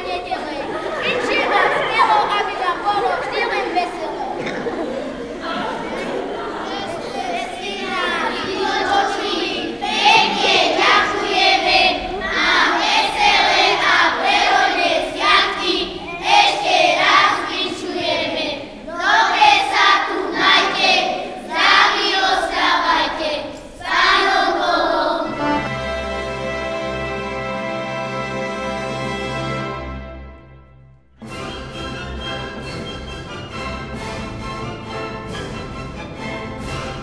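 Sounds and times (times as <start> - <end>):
children singing a carol: 4.4 - 28.0
instrumental music: 25.2 - 37.0.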